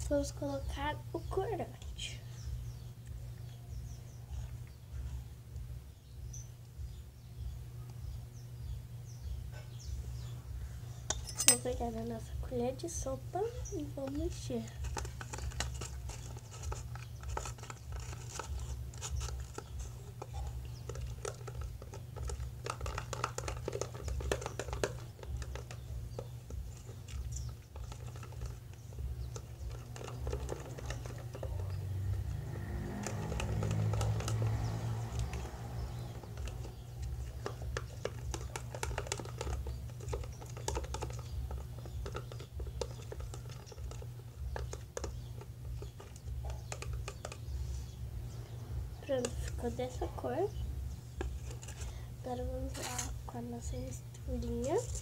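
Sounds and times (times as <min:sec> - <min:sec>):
steady low hum: 0:00.0 - 0:55.0
spoon scraping plastic tub: 0:13.1 - 0:48.0, 0:49.0 - 0:55.0.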